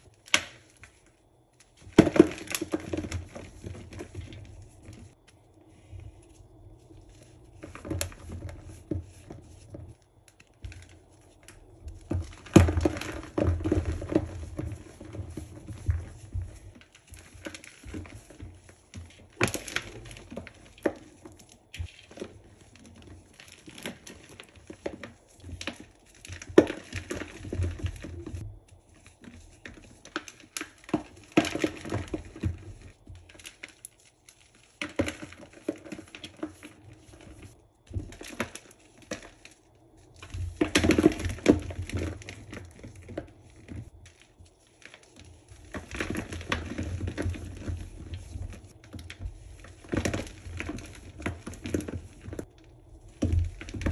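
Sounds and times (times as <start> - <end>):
powder squeezing: 0.0 - 53.9
cleanser slab crunching: 0.2 - 28.4.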